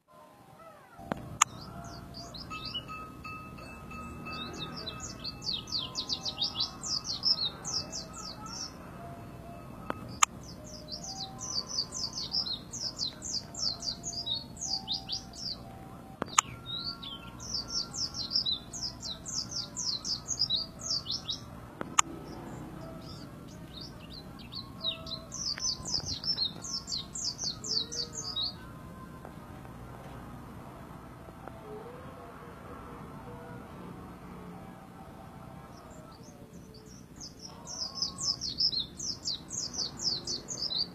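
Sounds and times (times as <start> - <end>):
bird twittering song: 1.0 - 28.7, 35.7 - 40.9.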